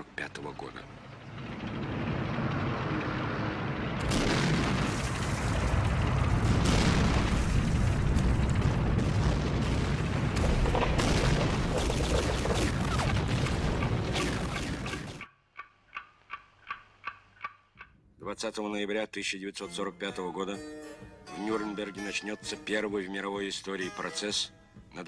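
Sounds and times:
rumble of explosions: 0.0 - 15.2
sharp blasts: 3.3 - 15.2
rapid gunfire: 8.2 - 15.2.

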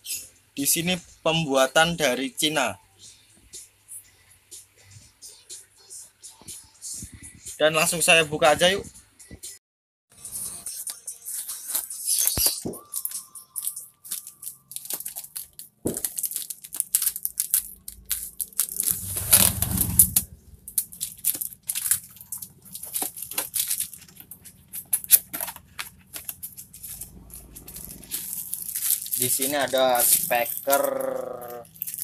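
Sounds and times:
packing tape tearing: 11.3 - 32.0
cardboard flaps scraping: 18.8 - 20.3.

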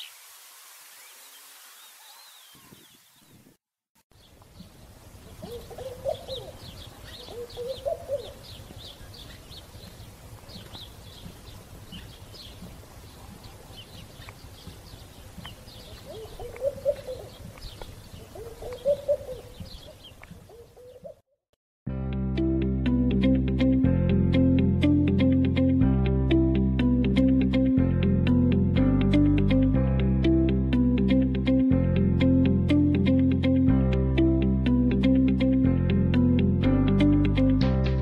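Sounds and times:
low wavering bird call: 5.4 - 8.4, 16.1 - 17.4, 18.3 - 19.6.

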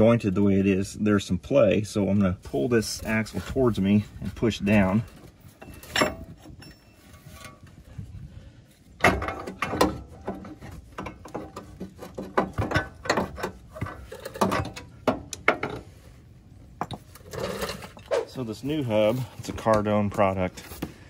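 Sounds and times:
metal clunks and clicks: 9.0 - 15.9.

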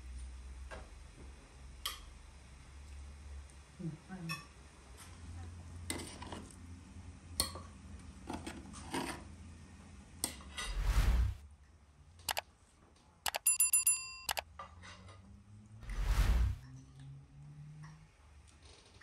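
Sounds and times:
rushing whoosh: 10.7 - 11.4, 15.8 - 16.6
clicks and bell-like ringing tone: 13.3 - 14.4.

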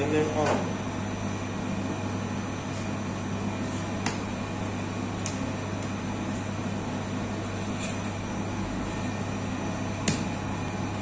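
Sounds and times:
dough mixer humming: 0.0 - 11.0.

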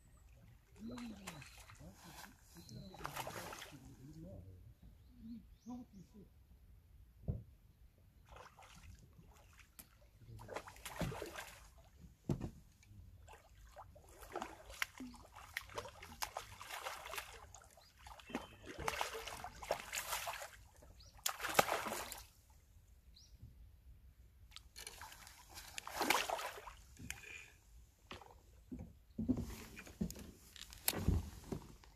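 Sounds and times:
fish splashing in water: 10.4 - 11.6, 13.3 - 22.3, 24.8 - 26.8.

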